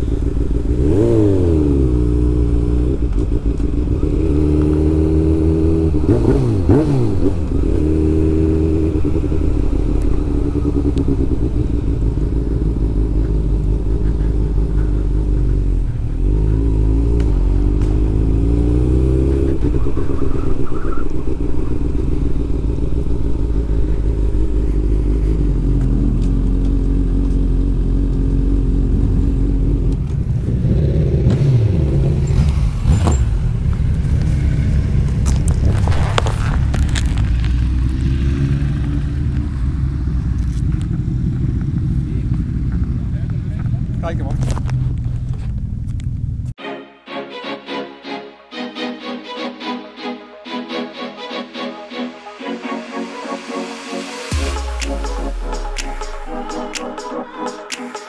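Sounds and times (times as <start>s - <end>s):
motorcycle engine running: 0.0s - 19.8s, 21.2s - 46.5s
passing motorcycle engine: 0.0s - 46.5s.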